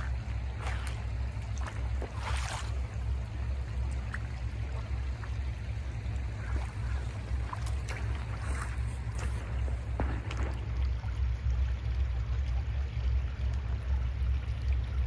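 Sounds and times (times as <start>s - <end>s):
water trickling over gravel: 0.0s - 15.0s
wind rumble on microphone: 0.0s - 15.0s
footsteps on gravel: 6.4s - 10.6s.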